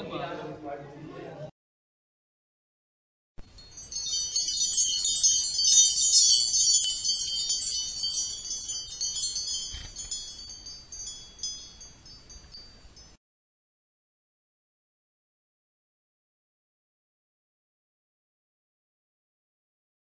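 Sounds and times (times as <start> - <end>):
chimes tinkling: 3.4 - 13.2.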